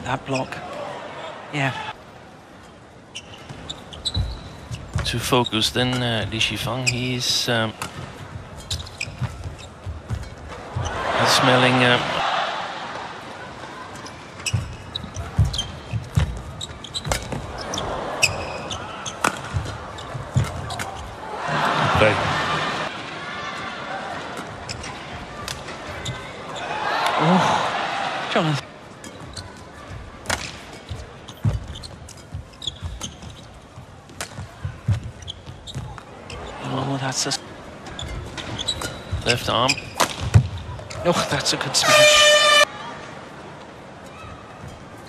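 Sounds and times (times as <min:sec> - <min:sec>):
shoe squeaks on court floor: 0:03.1 - 0:06.0, 0:08.6 - 0:10.4, 0:14.0 - 0:21.1, 0:30.4 - 0:36.6, 0:37.9 - 0:41.1
players' footfalls: 0:14.4 - 0:18.6.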